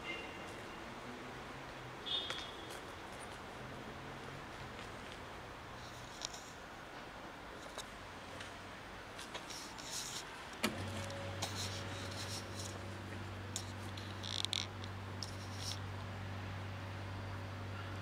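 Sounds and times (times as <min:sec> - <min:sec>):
light rustles and clicks: 0:04.6 - 0:08.6, 0:09.2 - 0:15.8
low electrical hum: 0:07.5 - 0:18.0.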